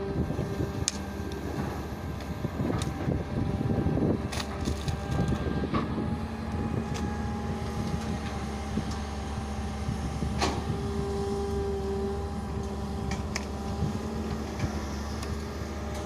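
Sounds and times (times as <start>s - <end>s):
excavator diesel engine droning: 0.0s - 16.0s.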